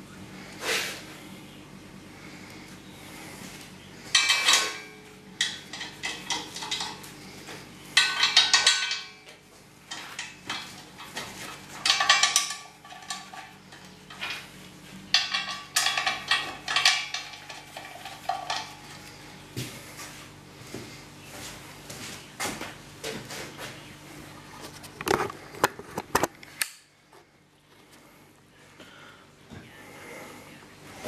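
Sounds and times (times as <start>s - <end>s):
metal clanking and rattling: 4.1s - 14.5s, 15.1s - 19.2s.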